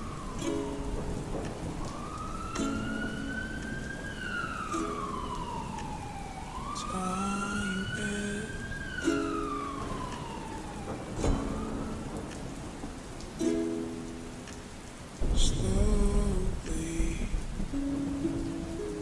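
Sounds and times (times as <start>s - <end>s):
ambulance siren wailing: 0.0s - 14.3s
rain hiss: 0.0s - 19.0s
slow reverberant song chords: 0.0s - 19.0s.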